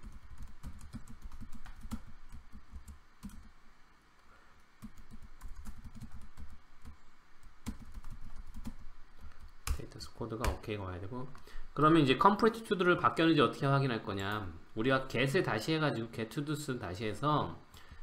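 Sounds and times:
typing on computer keyboard: 0.0 - 3.5, 4.8 - 7.0, 7.6 - 9.8.

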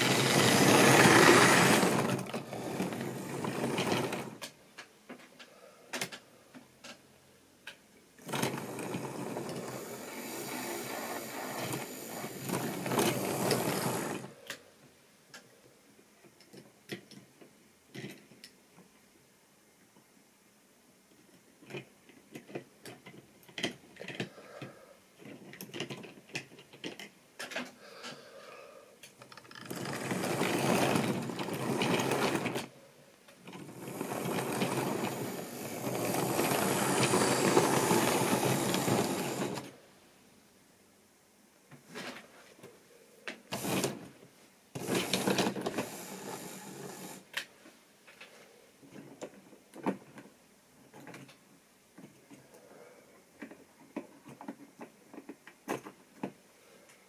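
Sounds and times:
model wagons rattling on rails: 0.0 - 4.5, 8.2 - 14.4, 29.2 - 32.7, 33.4 - 39.8, 43.5 - 44.0, 44.8 - 47.3
model wagons clicking when handled: 0.0 - 7.0, 21.1 - 28.2, 29.0 - 32.7, 33.3 - 39.8, 44.8 - 47.5, 53.4 - 57.0.

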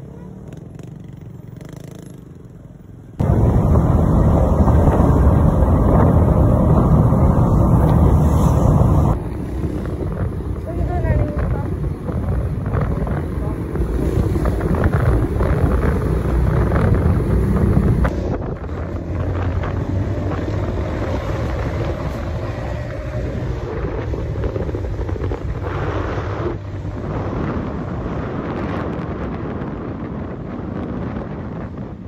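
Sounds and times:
traffic engines and tyres rumbling: 0.0 - 32.0
wind buffeting microphone: 3.2 - 32.0.

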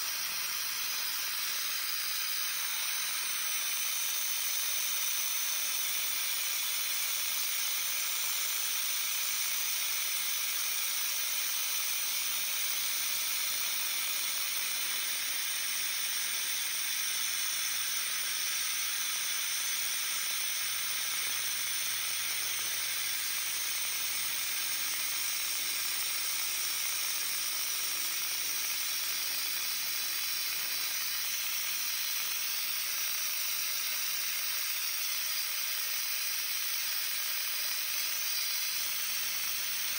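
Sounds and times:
hiss of coolant spray: 0.0 - 39.9.

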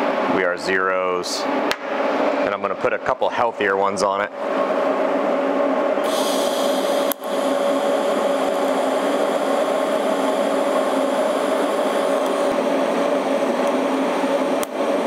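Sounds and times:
arc welding hiss: 6.0 - 12.6.

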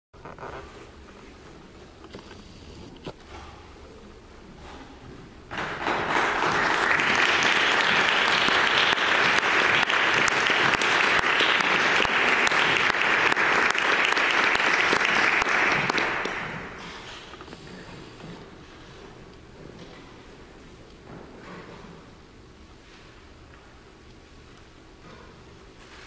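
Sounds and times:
audience applauding: 5.5 - 17.2.

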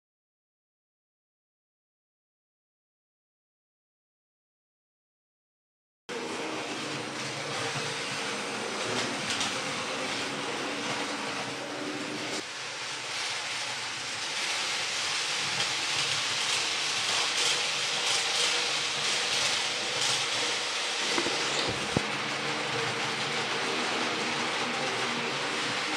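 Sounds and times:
model train wheels rattling: 12.9 - 22.0.

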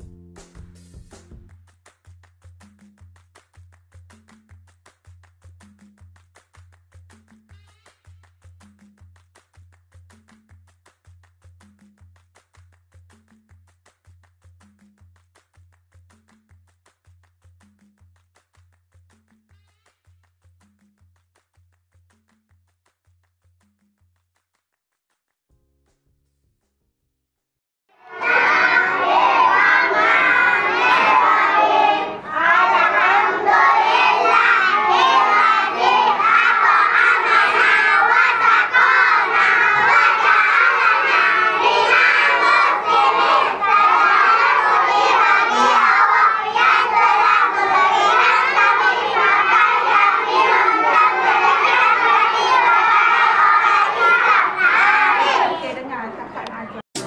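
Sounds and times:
young children shouting together: 28.0 - 55.6.

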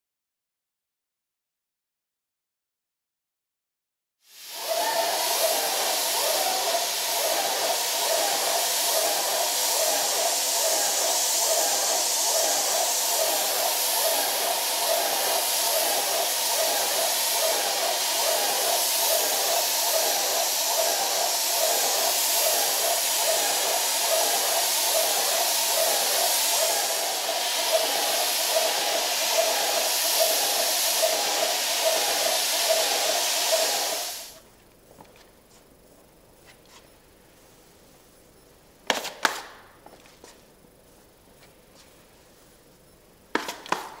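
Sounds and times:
spray gun hissing: 4.3 - 34.4.

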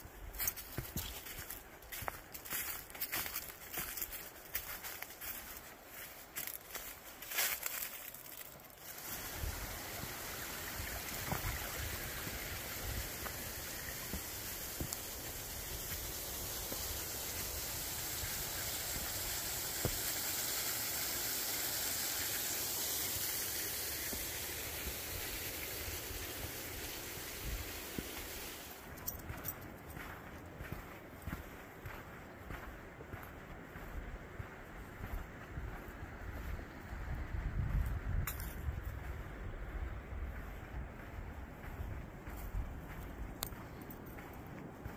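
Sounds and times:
footsteps on a trail: 0.0 - 20.2, 26.1 - 44.9
rushing stream water: 0.0 - 32.2.

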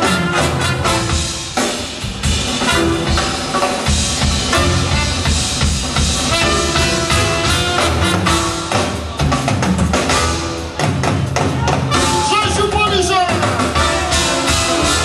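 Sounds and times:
trumpet: 0.0 - 1.5, 2.5 - 3.4, 4.5 - 5.4, 6.2 - 8.9, 13.4 - 15.0
guitar: 0.0 - 15.0
steady drum beat: 0.0 - 15.0.

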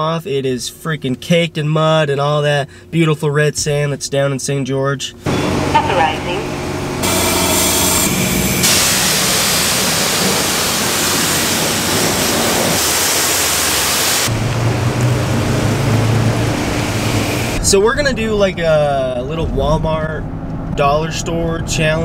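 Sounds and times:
steady low hum: 0.1 - 10.9
pressure washer spraying water: 7.0 - 17.6.

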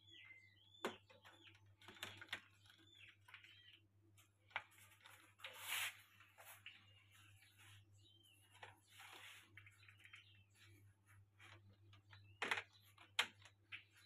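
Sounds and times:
scraping rustle: 4.6 - 10.8.

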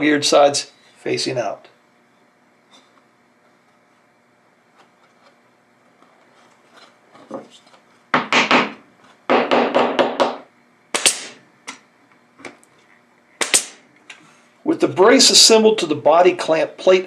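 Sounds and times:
hammer tapping wood: 8.2 - 10.4
nailer firing sharp crack: 8.2 - 11.4, 13.4 - 13.8.

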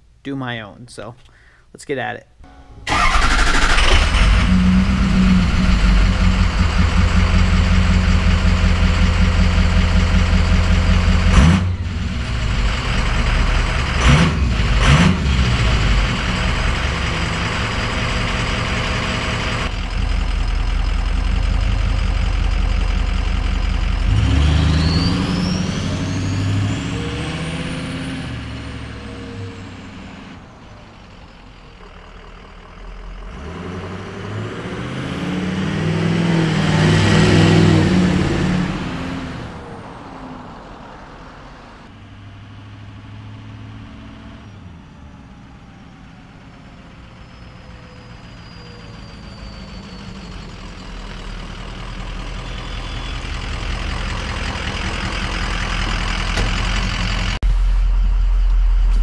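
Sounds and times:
engine whine: 2.5 - 42.3, 43.3 - 59.0
diesel engine idling: 2.8 - 34.4, 44.6 - 59.0.

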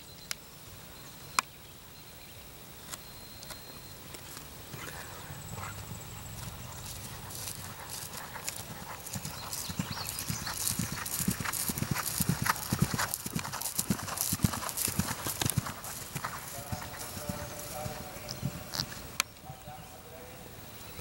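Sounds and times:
horse hoofbeats on turf: 4.8 - 19.1.

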